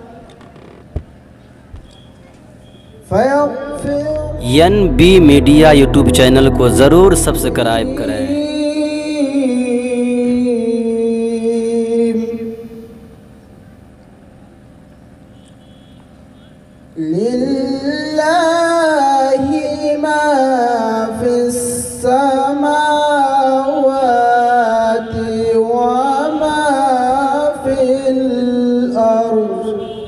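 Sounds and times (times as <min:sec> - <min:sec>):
man chanting melodically into microphone: 0:03.1 - 0:12.6, 0:17.0 - 0:30.0.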